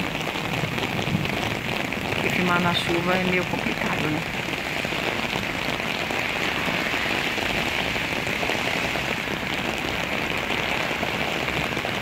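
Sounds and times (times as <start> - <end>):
rain on an umbrella: 0.0 - 12.0.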